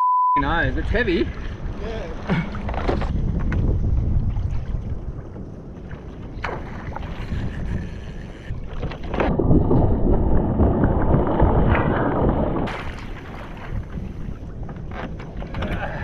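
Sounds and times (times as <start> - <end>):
wind on microphone: 0.7 - 16.0
water slapping around a kayak: 0.8 - 16.0.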